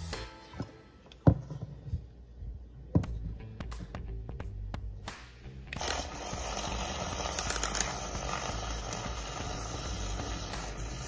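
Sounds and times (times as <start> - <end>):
milk frother whirring: 5.8 - 11.0.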